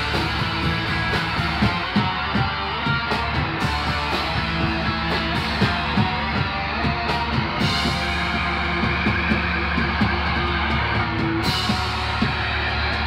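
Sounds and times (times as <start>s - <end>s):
bass guitar: 0.0s - 13.0s
drum kit: 0.0s - 13.0s
electric guitar: 0.0s - 13.0s.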